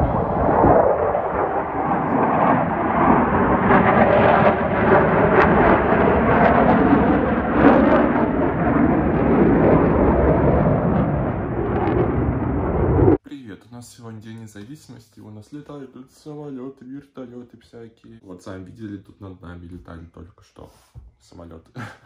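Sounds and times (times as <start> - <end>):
fighter jets roaring overhead: 0.0 - 13.2.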